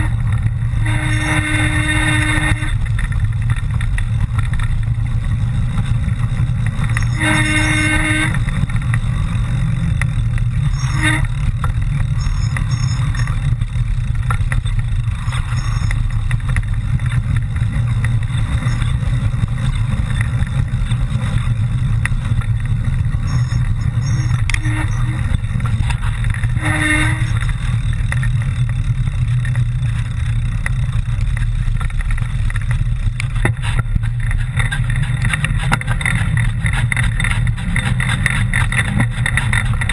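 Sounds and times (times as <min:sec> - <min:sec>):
short pitched tones: 0:00.0 - 0:02.8, 0:06.9 - 0:08.5, 0:23.2 - 0:25.7, 0:26.5 - 0:27.4
steady low rumble: 0:00.0 - 0:39.9.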